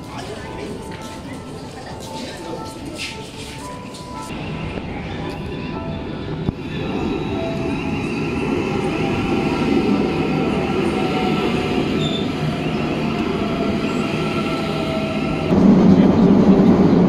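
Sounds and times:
train carriage rumble: 0.0s - 17.0s
train whine over rumble: 4.3s - 17.0s.

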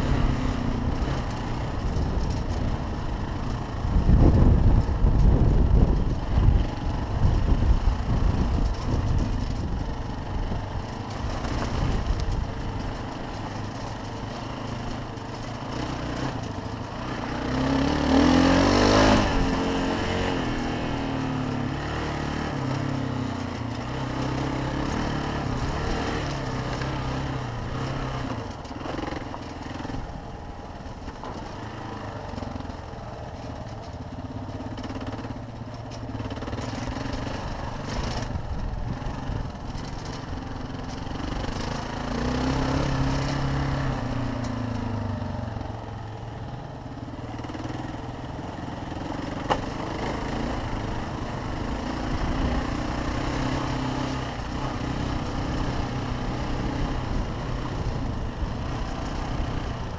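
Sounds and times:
motorcycle engine running: 0.0s - 59.9s
wind on microphone: 3.8s - 10.7s.

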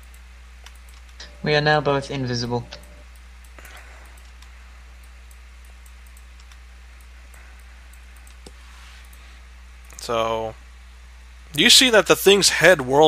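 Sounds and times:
computer mouse clicks: 0.0s - 1.3s, 2.7s - 9.2s
electrical hum: 0.0s - 13.0s.

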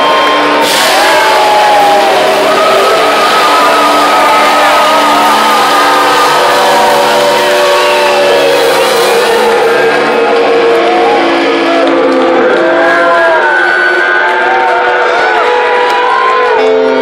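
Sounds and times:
live rock band playing loudly: 0.0s - 12.9s
electric guitars ringing: 0.0s - 17.0s.

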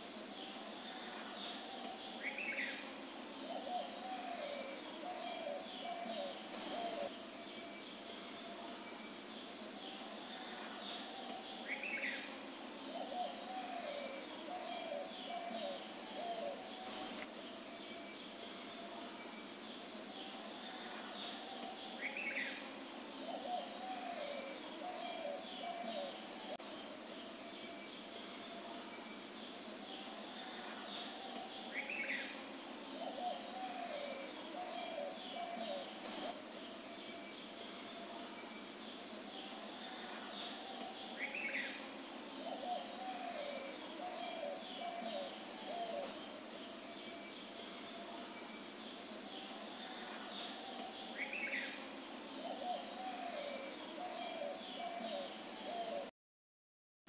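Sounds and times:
steady high hiss: 0.0s - 56.0s
low bird cooing: 3.4s - 7.8s, 9.8s - 17.2s, 20.1s - 26.6s, 28.5s - 36.4s, 37.0s - 56.1s.

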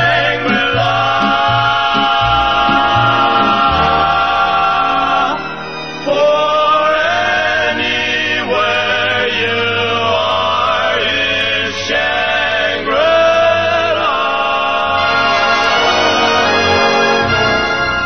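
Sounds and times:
low steady bass: 0.0s - 5.5s
vocal group singing harmony: 0.0s - 18.0s.

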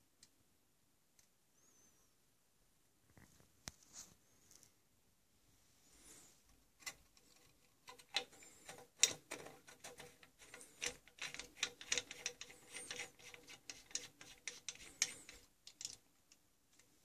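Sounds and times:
metal cap clicking and scraping: 6.8s - 16.0s.

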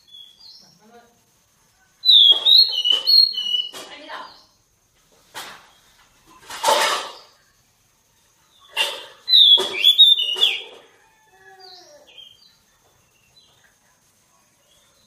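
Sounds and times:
bird singing: 0.0s - 4.7s, 8.4s - 15.0s.

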